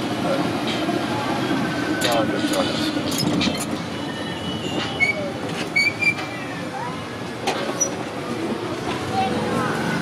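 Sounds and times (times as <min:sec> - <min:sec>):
street traffic: 0:00.0 - 0:10.0
taxi ride rumble: 0:00.0 - 0:10.0
short high squeaks: 0:02.6 - 0:06.5.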